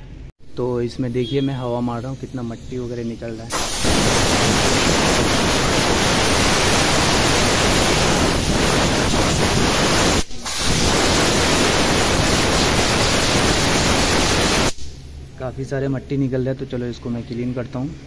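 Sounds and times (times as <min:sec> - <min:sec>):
compressed air blow gun hissing: 0:01.4 - 0:15.0.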